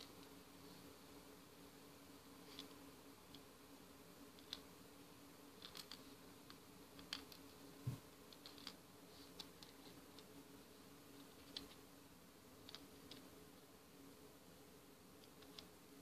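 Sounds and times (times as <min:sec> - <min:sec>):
plastic beads clicking: 0:05.6 - 0:07.4, 0:08.3 - 0:08.8.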